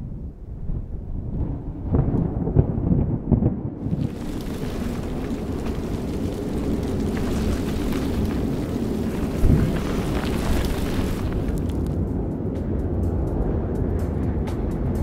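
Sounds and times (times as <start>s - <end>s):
deep rumbling: 0.7s - 14.4s
steady rushing noise: 3.9s - 15.0s.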